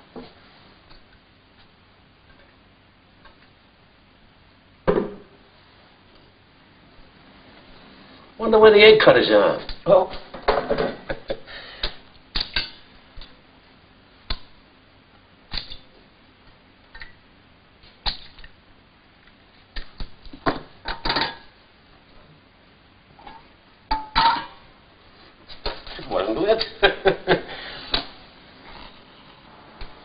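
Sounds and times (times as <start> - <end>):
pan and utensils clattering: 10.3 - 11.4, 20.5 - 21.5, 23.2 - 24.6.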